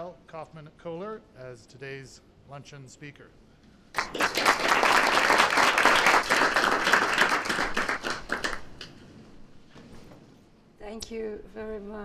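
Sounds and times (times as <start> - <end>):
audience applauding: 3.9 - 8.9.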